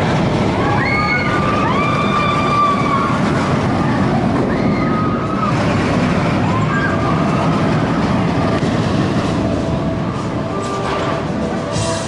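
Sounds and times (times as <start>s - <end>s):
roller coaster rumbling on track: 0.0s - 12.0s
riders screaming: 0.6s - 3.6s.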